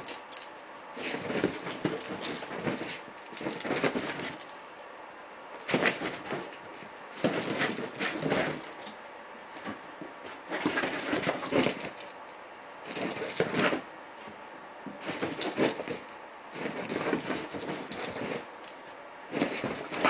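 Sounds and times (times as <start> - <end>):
puppies scuffling: 0.0 - 4.7, 5.7 - 8.9, 9.6 - 12.2, 12.9 - 20.0.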